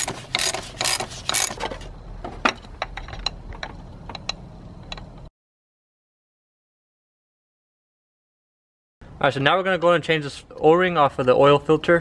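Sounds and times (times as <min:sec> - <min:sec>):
ratchet wrench cranking: 0:00.0 - 0:01.6.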